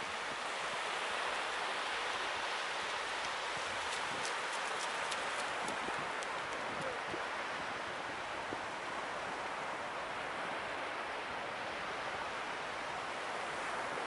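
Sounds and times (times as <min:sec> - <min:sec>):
small surf washing onto sand: 0:00.0 - 0:11.1.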